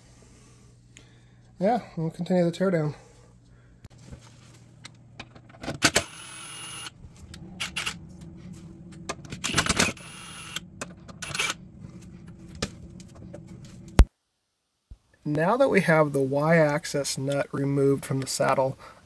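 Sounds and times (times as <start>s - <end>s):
low steady hum: 0.0s - 14.4s.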